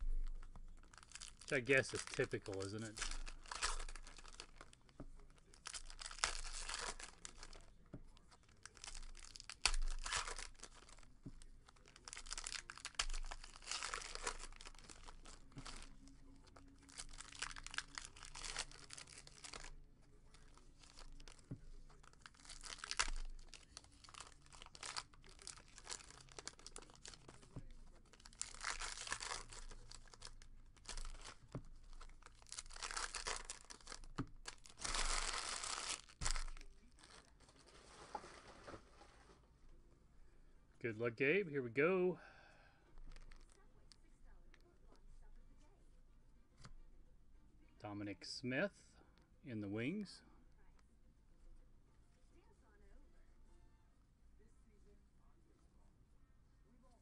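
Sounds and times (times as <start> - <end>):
wrappers tearing and crinkling: 0.0 - 38.5, 43.0 - 43.9.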